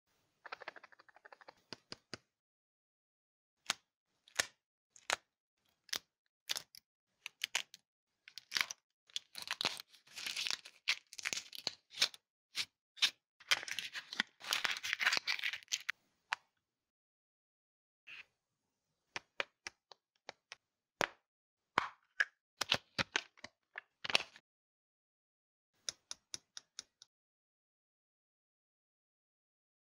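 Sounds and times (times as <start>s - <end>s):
foil wrapper crinkling and tearing: 8.4s - 12.2s, 13.5s - 15.9s
paper leaflet crinkling: 13.4s - 15.9s.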